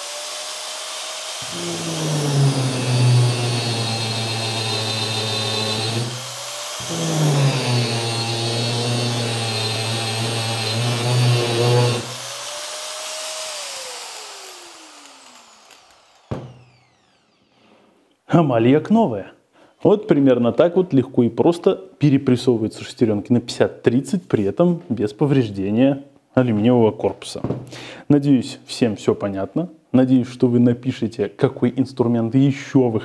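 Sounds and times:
angle grinder motor whine: 0.0 - 17.5.

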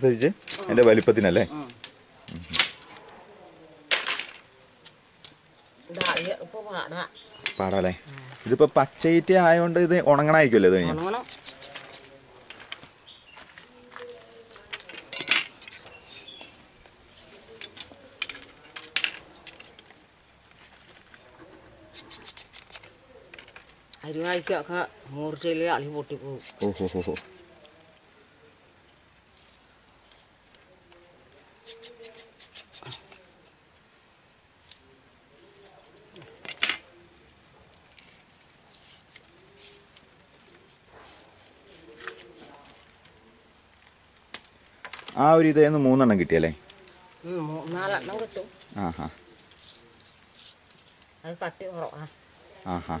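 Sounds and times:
bamboo tearing rasp: 11.0 - 12.1, 21.9 - 23.0, 31.6 - 33.2, 37.8 - 42.7, 47.5 - 51.0
blade splitting and scraping bamboo: 11.0 - 12.2, 14.0 - 24.6, 31.6 - 33.8, 34.6 - 45.2, 47.4 - 51.1.

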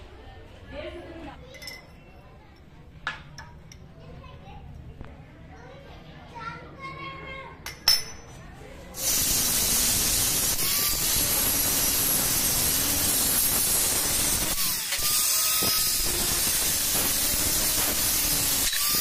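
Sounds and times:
angle grinder cutting steel: 9.0 - 19.0.

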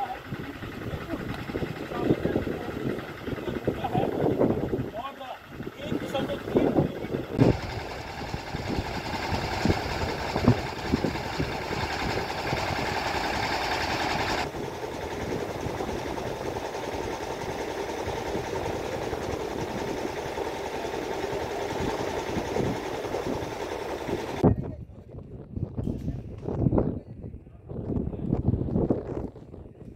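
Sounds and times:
rail vehicle engine running: 0.0 - 24.4.

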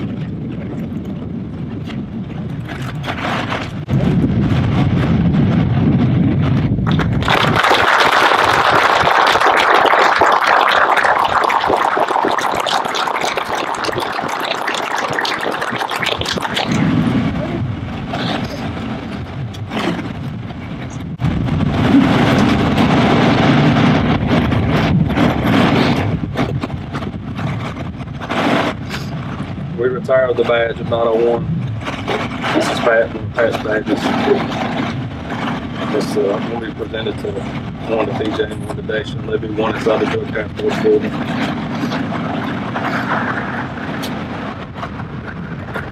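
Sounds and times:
steady low rumble: 0.0 - 45.9
crowd applauding: 6.9 - 17.4.

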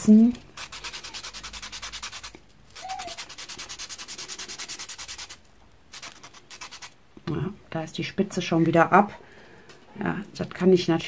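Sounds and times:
pencil rasping on sandpaper: 0.6 - 6.9.

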